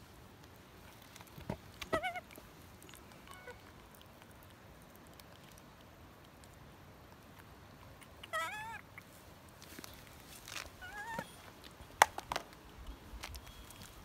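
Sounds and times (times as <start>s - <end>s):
baby monkey coo calls: 1.9s - 2.4s, 8.0s - 9.0s, 10.8s - 11.4s.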